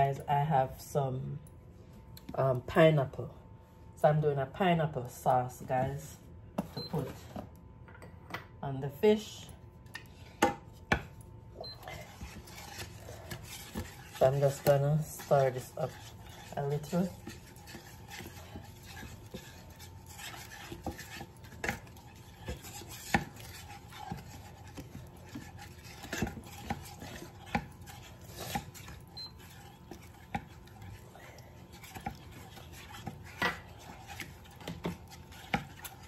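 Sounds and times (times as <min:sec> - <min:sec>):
wooden spatula scraping a pan: 0:11.7 - 0:36.0.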